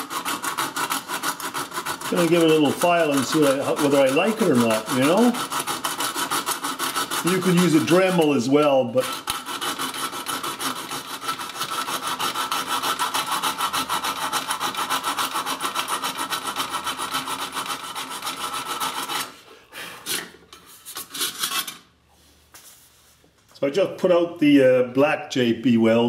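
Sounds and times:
hand file scraping metal: 0:00.0 - 0:21.9.

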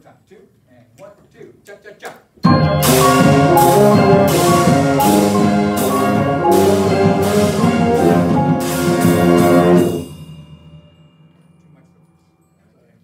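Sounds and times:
concert band playing: 0:02.4 - 0:10.8
percussion accents: 0:02.4 - 0:12.7.

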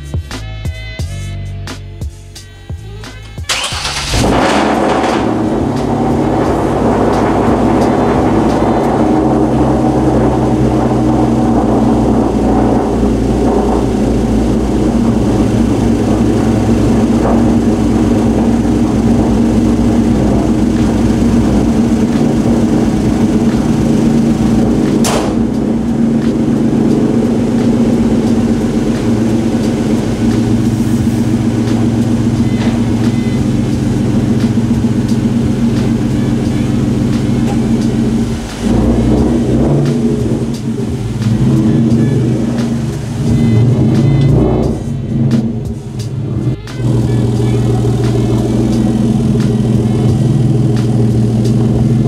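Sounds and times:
car engine idling: 0:02.4 - 0:52.0
car hood shutting: 0:23.6 - 0:27.1.

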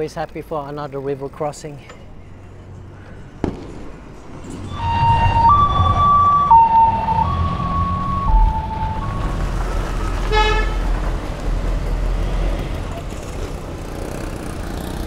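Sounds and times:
low traffic rumble: 0:00.0 - 0:15.0
ambulance two-tone siren: 0:04.7 - 0:10.8.

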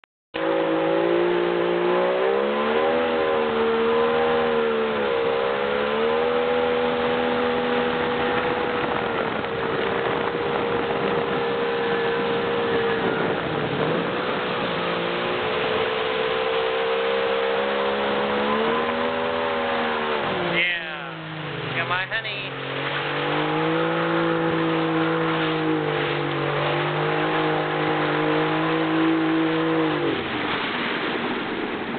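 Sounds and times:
motorboat engine running: 0:00.4 - 0:31.9
rush of boat wake: 0:00.4 - 0:31.9
wind on microphone: 0:06.3 - 0:17.3.

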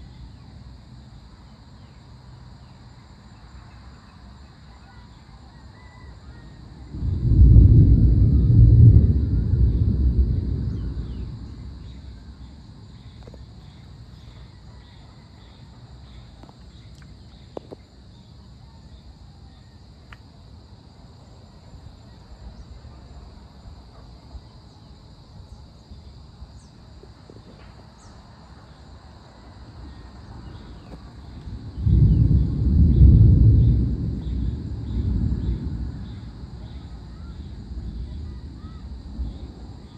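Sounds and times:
insects chorus: 0:00.0 - 0:39.9
short insect chirps: 0:00.0 - 0:39.9
thunder rumbling: 0:06.8 - 0:13.6, 0:31.1 - 0:39.9.

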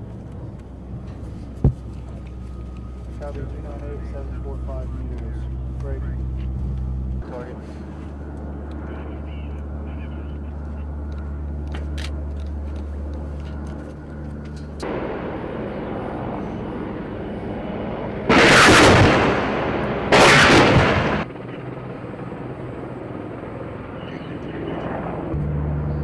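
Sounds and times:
steady low hum: 0:00.0 - 0:26.0
helicopter weapons firing bursts: 0:17.8 - 0:21.8.

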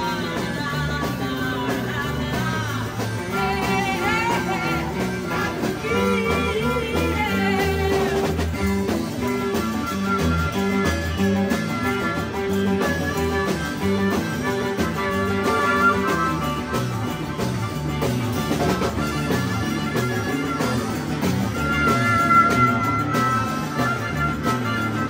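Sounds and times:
rock band playing: 0:00.0 - 0:25.0
stepping bass line: 0:00.0 - 0:25.0
held high guitar note: 0:09.2 - 0:25.0.

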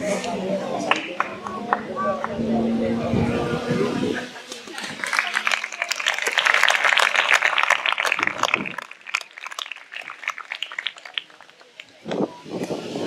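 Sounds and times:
audience applauding: 0:00.9 - 0:02.0, 0:04.5 - 0:12.0.

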